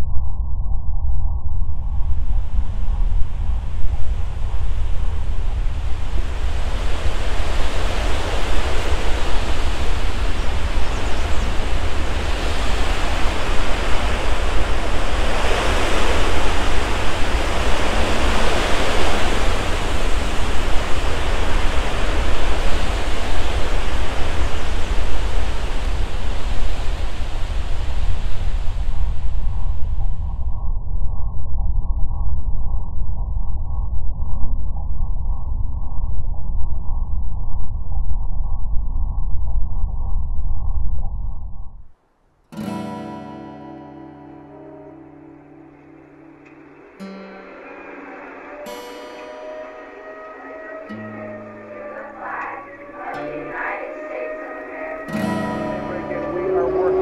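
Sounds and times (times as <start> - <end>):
heavy low rumble: 0.0 - 41.9
loud rushing noise: 2.2 - 29.3, 45.2 - 57.0.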